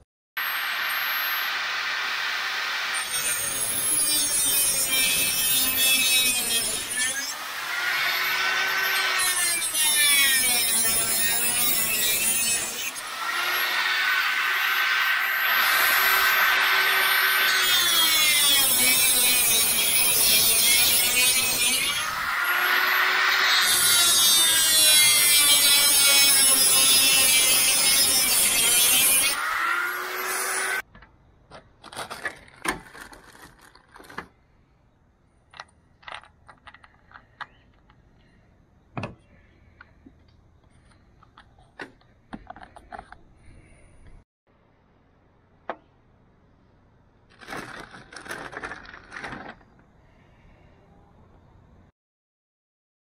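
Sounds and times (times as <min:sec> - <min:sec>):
angle grinder cutting metal: 0:00.4 - 0:30.9.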